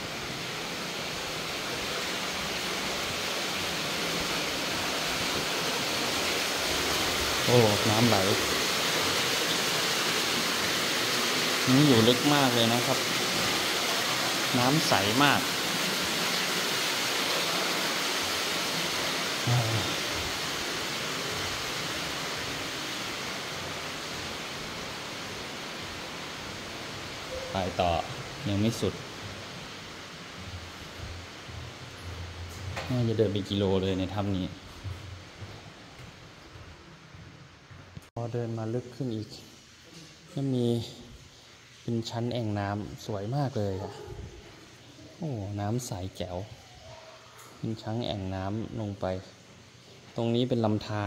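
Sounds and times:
underground stream rushing: 0.0 - 35.4.

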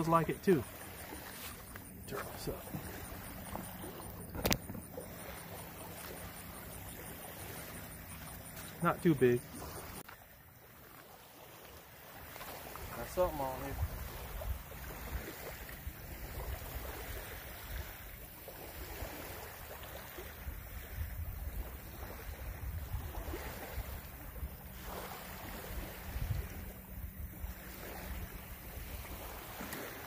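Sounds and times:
small waves lapping: 0.0 - 30.0
wind buffeting microphone: 13.2 - 18.2, 20.4 - 24.9, 25.6 - 29.3.

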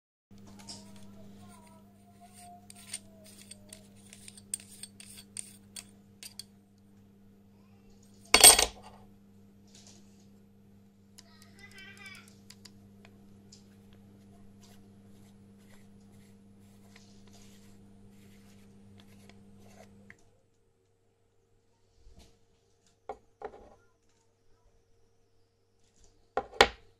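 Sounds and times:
lens rings clicking and scraping: 2.3 - 6.4.

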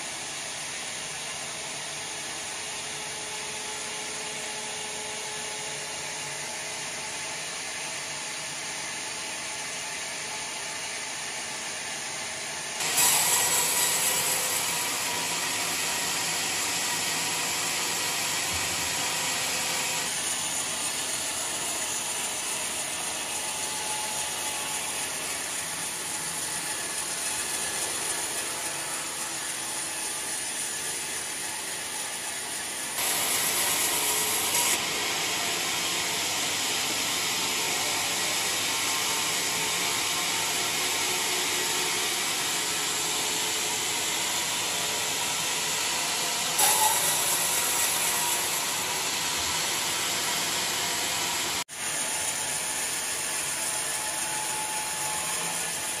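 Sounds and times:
band saw cutting log: 12.8 - 56.0.

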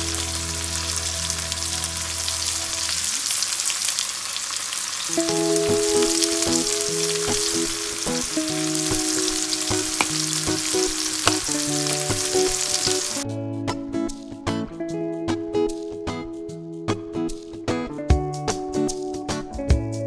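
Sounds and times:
vegetables sizzling in hot oil: 0.0 - 13.2
plucked background music: 5.2 - 20.0.

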